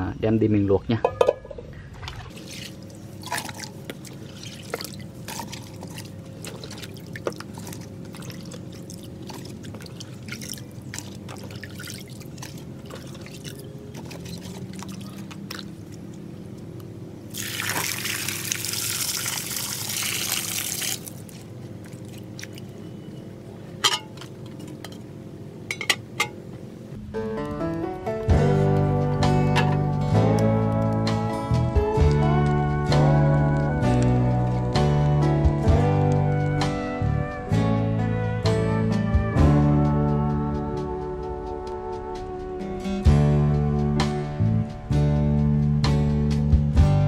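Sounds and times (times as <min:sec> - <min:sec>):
pouring water: 0:02.0 - 0:16.2, 0:17.3 - 0:22.8
water splashing and dripping: 0:02.0 - 0:16.2, 0:17.3 - 0:22.8.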